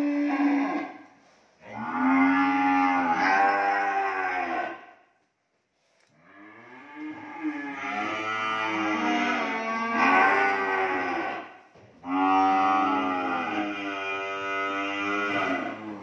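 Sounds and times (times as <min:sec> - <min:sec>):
cattle mooing: 0:01.7 - 0:04.8, 0:06.3 - 0:16.0.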